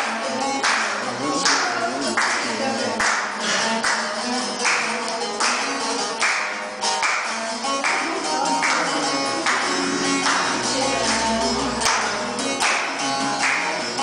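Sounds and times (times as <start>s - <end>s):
long-necked lute folk tune: 0.0s - 14.0s.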